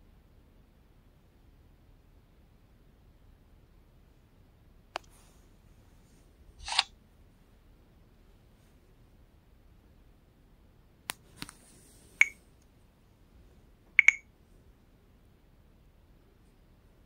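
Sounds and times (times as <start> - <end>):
smartphone clicks: 6.6 - 6.9, 12.2 - 12.4, 14.0 - 14.2.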